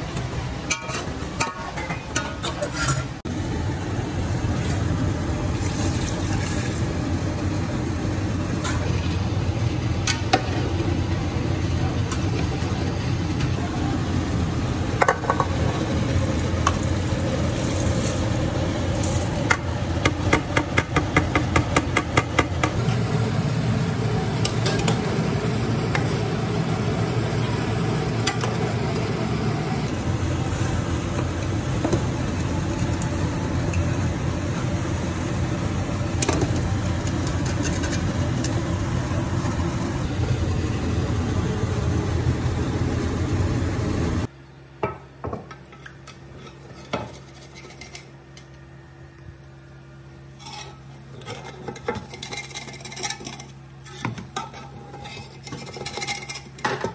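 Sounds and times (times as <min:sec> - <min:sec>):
fork scraping metal pot: 0:50.4 - 0:56.6.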